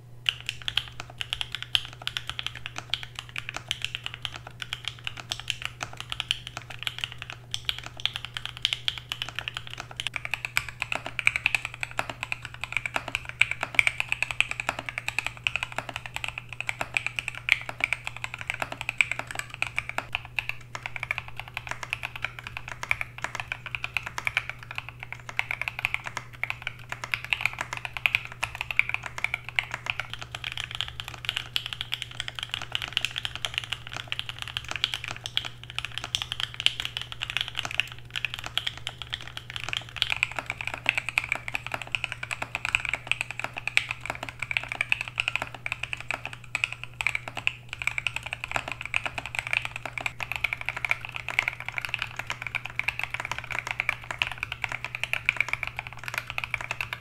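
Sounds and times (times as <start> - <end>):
steady low hum: 0.0 - 57.0
mechanical keyboard typing: 0.3 - 57.0.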